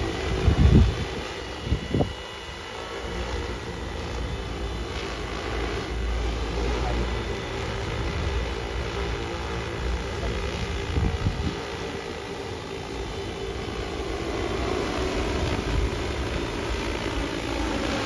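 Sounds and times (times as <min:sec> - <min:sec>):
drone propellers buzzing: 0:00.0 - 0:18.0.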